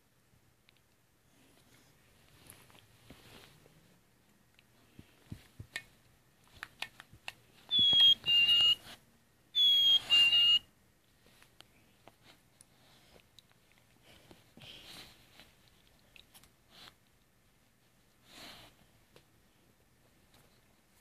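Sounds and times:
toy playing two-note bird whistle: 7.7s - 8.8s, 9.6s - 10.6s.

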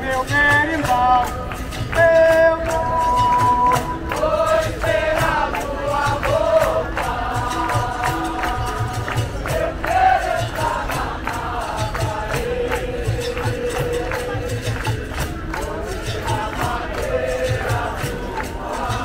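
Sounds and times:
hand percussion: 0.0s - 19.0s
group of voices chanting: 4.1s - 19.0s.

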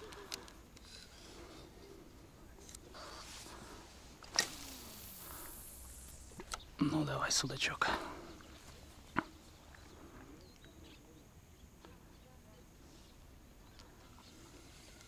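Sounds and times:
faint ticks: 0.0s - 1.2s.

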